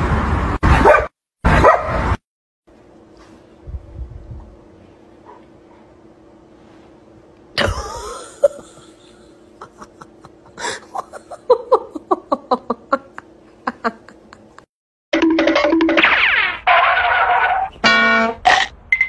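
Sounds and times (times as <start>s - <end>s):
person laughing: 7.6s - 14.7s.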